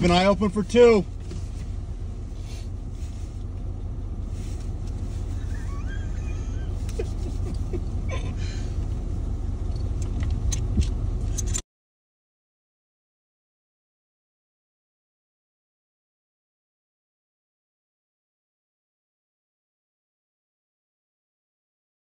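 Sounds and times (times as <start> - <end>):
engine idling low rumble: 0.0 - 11.6.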